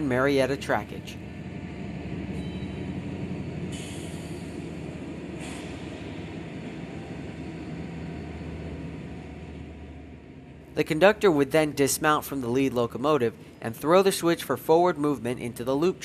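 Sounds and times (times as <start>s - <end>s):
diesel locomotives running: 0.0s - 16.0s
air brake hisses: 3.7s - 4.6s, 5.4s - 6.3s.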